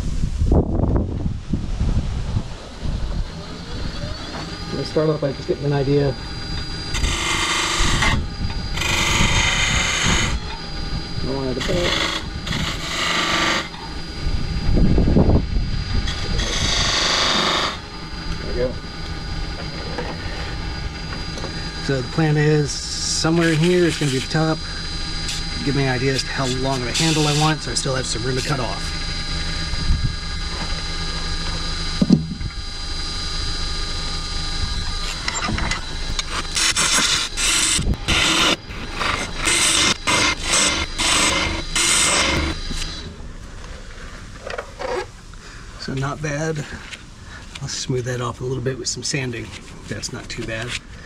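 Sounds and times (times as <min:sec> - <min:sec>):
low rumble: 0:00.0 - 0:12.9, 0:13.7 - 0:26.3, 0:27.6 - 0:43.5
lathe whine: 0:00.0 - 0:51.0
gouge scraping spinning wood: 0:03.4 - 0:15.0, 0:16.0 - 0:29.5, 0:34.9 - 0:43.2
tool cutting wood on lathe: 0:04.2 - 0:10.7, 0:11.3 - 0:13.9, 0:16.0 - 0:18.7, 0:19.6 - 0:29.0, 0:34.9 - 0:43.1.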